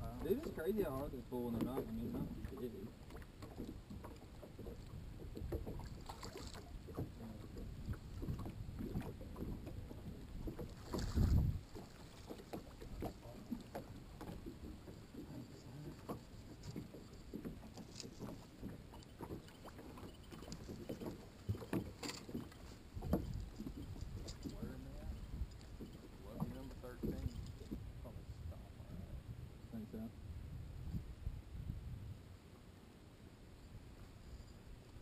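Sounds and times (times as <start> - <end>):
water lapping against boat hull: 0.0 - 31.7
wind on microphone: 4.6 - 17.6, 20.2 - 32.4.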